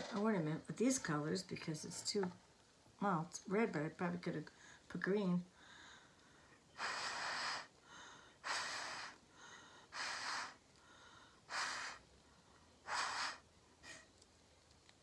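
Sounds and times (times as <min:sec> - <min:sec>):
puffs blown through a straw: 0:06.8 - 0:07.7, 0:08.4 - 0:09.2, 0:09.9 - 0:10.6, 0:11.5 - 0:12.0, 0:12.8 - 0:14.1.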